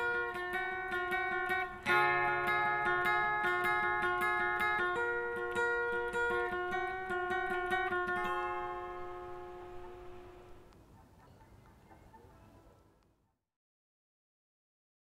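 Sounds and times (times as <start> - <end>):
picked notes over held chord: 0.0 - 10.7.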